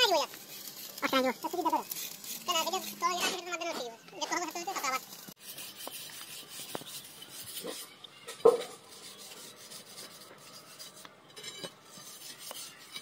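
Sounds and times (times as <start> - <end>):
abrasive block scraping metal: 5.4 - 13.0.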